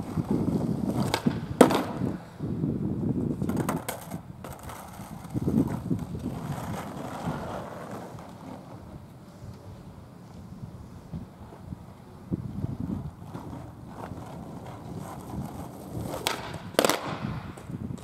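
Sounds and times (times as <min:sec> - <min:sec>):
skateboard clacks: 0:00.0 - 0:02.3, 0:03.2 - 0:09.7, 0:12.7 - 0:18.0
skateboard wheels rolling on asphalt: 0:00.0 - 0:18.0.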